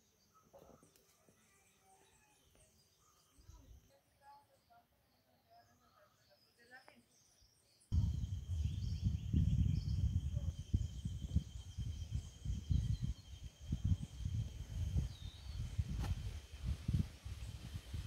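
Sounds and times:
wind buffeting microphone: 7.9 - 18.0
high insect drone: 8.0 - 12.7.

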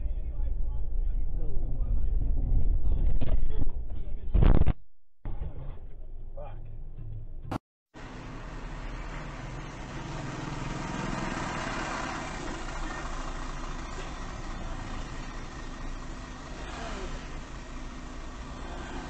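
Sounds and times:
car engines idling: 8.0 - 19.0
vehicles passing close by: 8.0 - 19.0.

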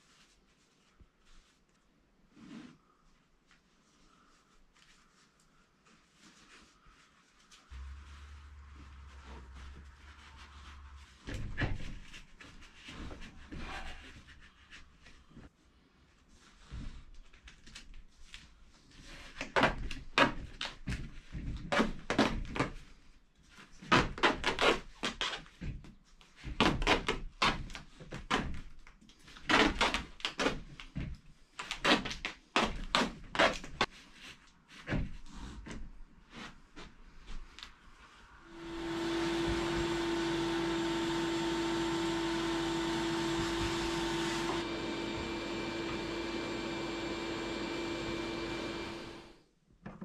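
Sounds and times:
knocks and rustles of hose handling: 8.8 - 15.5, 16.6 - 37.7.

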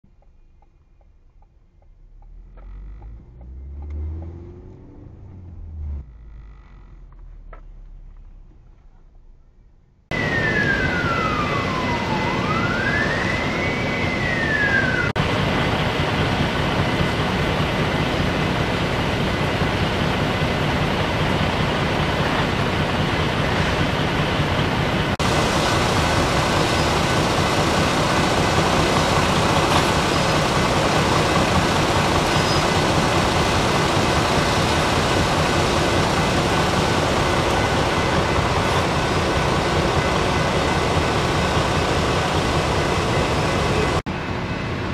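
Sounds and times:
idling vehicle engines rumbling: 0.1 - 44.9
emergency siren wailing: 10.1 - 18.2, 25.2 - 44.1.

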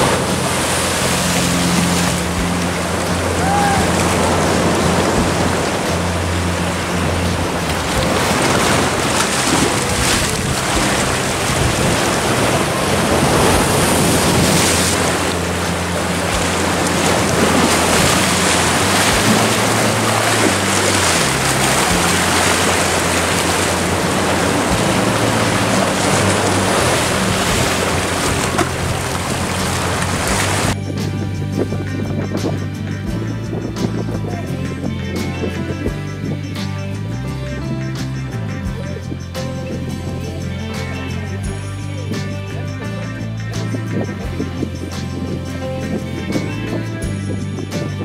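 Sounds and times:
waves breaking on beach: 0.0 - 30.8
wind on microphone: 0.0 - 40.6, 41.3 - 48.0.

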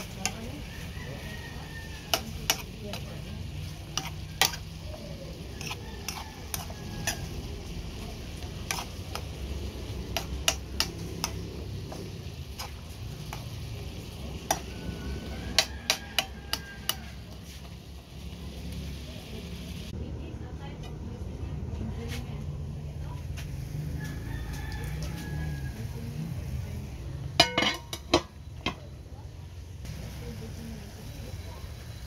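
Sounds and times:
food sizzling: 0.0 - 20.0, 22.6 - 32.0
metal spoon clicking against pan: 2.0 - 3.1, 3.9 - 4.7, 10.1 - 11.5, 14.5 - 14.7, 15.6 - 17.0.

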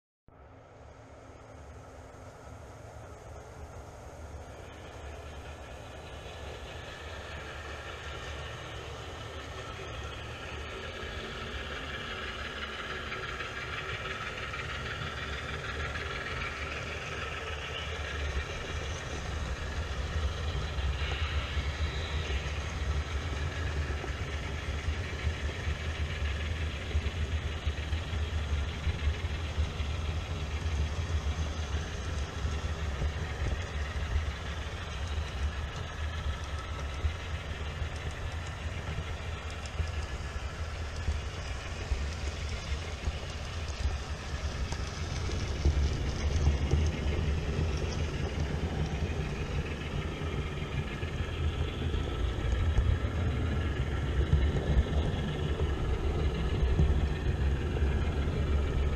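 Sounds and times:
model train wheels and motor rumble: 0.3 - 58.9.

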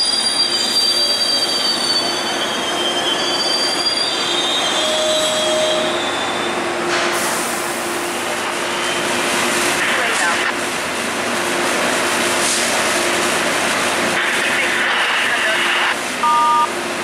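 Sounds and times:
train wheels squealing on rails: 0.0 - 9.5.

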